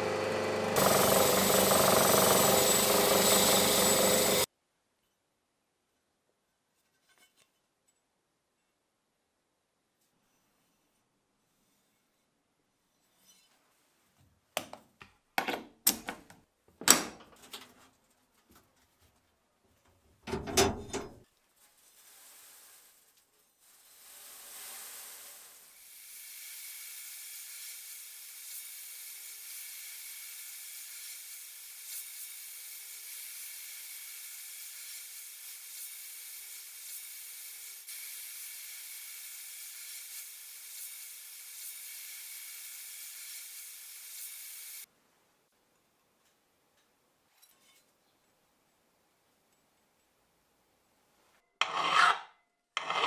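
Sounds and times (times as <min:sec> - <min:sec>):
sandblast gun hissing: 0:00.8 - 0:04.5, 0:23.8 - 0:44.9.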